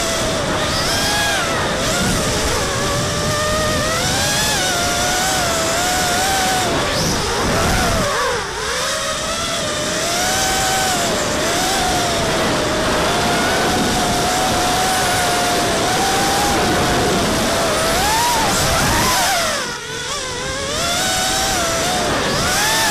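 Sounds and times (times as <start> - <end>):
drone motors and propellers whining: 0.0 - 22.9.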